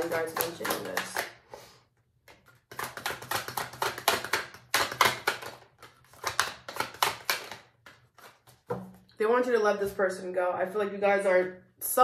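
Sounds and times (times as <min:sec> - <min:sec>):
cards being shuffled: 0:02.2 - 0:09.1.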